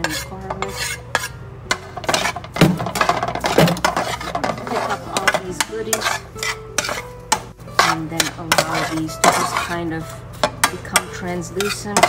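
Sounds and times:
spatula scraping metal frying pan: 0.0 - 12.0.

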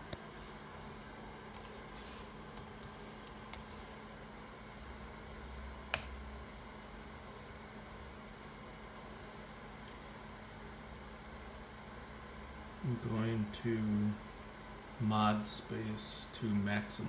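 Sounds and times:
computer keyboard keystrokes: 1.5 - 1.8, 2.6 - 3.7, 5.4 - 6.2.

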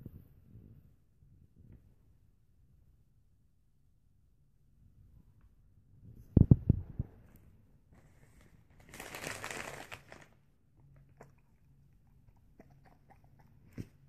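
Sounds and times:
faint chewing clicks: 10.8 - 14.0.

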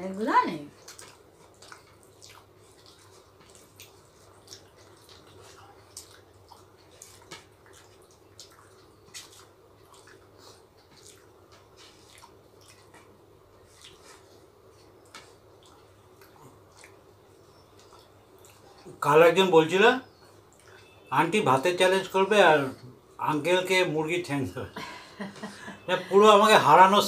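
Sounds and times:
low steady hum: 0.0 - 27.0
people chewing wet clicks: 0.7 - 19.4, 20.0 - 21.1.

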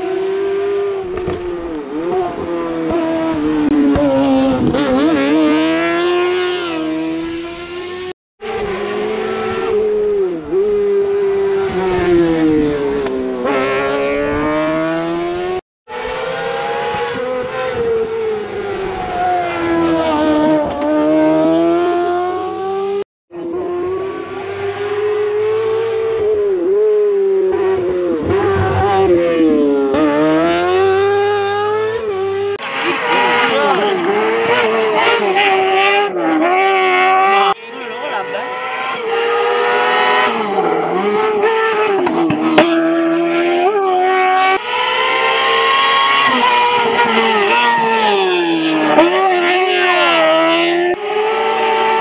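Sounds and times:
rally car engines revving: 0.0 - 52.0.

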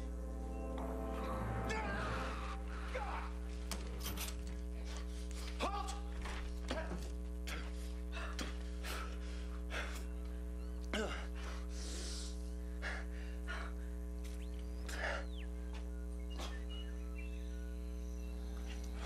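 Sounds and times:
drama soundtrack: 0.0 - 3.8
steady low hum: 0.0 - 19.0.

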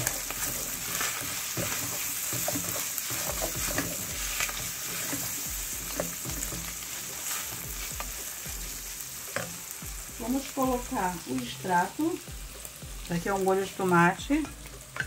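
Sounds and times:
wooden spoon scraping a pan: 0.0 - 9.5
meat sizzling in a pan: 0.0 - 15.0.

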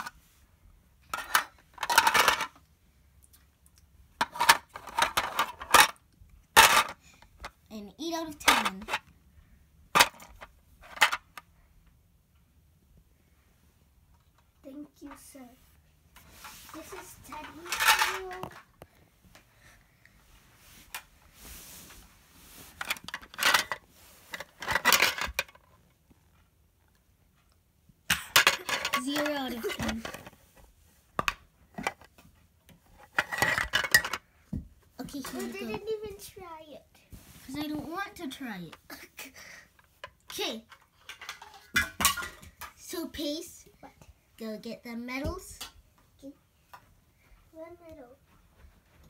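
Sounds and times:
toy food pieces clattering: 1.1 - 2.6, 17.3 - 18.6, 24.5 - 25.6, 28.1 - 30.2.

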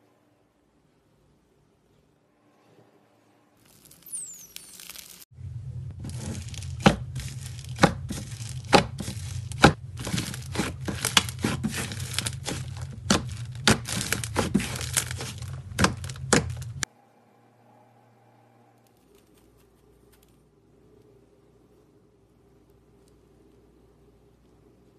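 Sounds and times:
steady low hum: 5.3 - 24.9
slime air pockets popping: 6.0 - 16.9.

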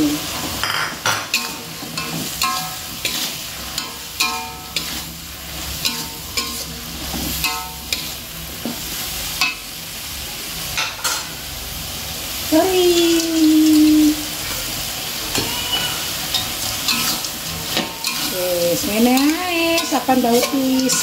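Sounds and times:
metal spatula scraping wok: 0.0 - 9.6, 15.2 - 21.0
food sizzling: 0.0 - 21.0.

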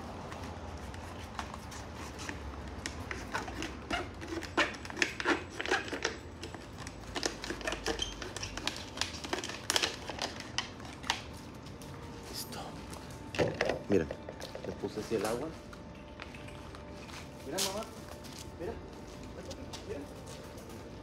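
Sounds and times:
plastic bottle crackling: 2.8 - 11.4.

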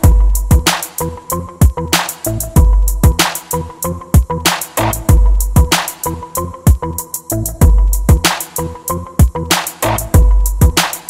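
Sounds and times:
heavy drum beat music: 0.0 - 11.0.

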